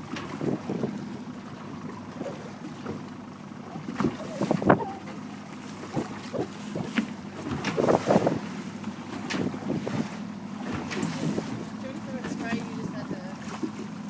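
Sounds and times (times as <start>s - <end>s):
wind buffeting microphone: 0.0s - 1.2s, 3.8s - 5.1s, 5.8s - 8.6s
steady low hum: 0.0s - 14.0s
water splashing against hull: 0.0s - 14.0s.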